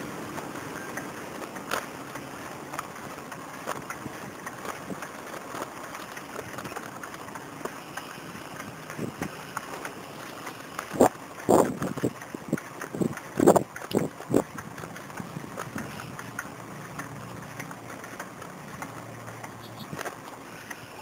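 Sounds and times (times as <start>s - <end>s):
bicycle tyre rolling: 0.0s - 21.0s
small clicks and knocks: 0.3s - 20.8s
wind on microphone: 8.9s - 9.4s, 10.9s - 16.1s.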